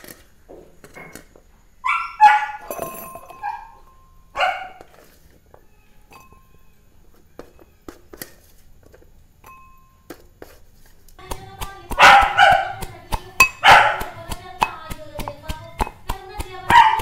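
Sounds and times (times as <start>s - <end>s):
dog barking: 1.8s - 2.7s, 3.4s - 3.8s, 4.4s - 4.9s, 11.9s - 12.8s, 13.5s - 14.1s, 16.7s - 17.0s
metal rod pounding in metal cup: 11.2s - 17.0s.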